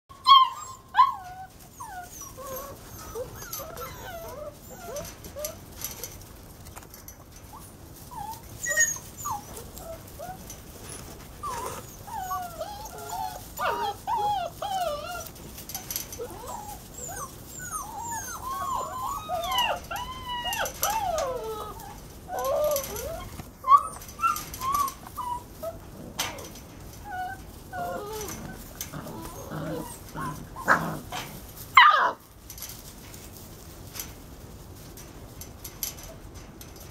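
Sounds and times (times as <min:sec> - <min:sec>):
puppies whining and yipping: 0:00.1 - 0:06.2, 0:07.3 - 0:32.2.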